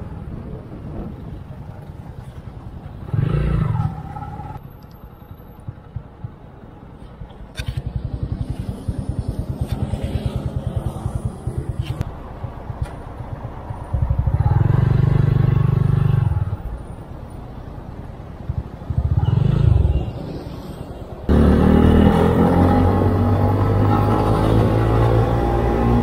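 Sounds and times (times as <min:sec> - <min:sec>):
motorcycle engine running: 0:05.6 - 0:16.7.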